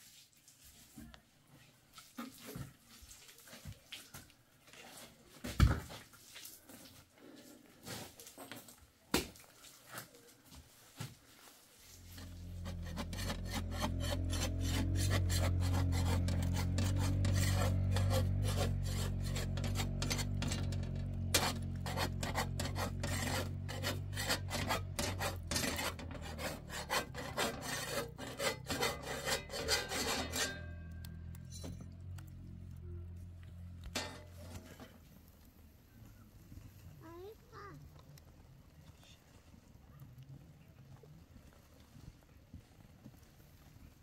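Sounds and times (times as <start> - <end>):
metal spatula scraping griddle: 11.9 - 32.2, 33.8 - 35.0.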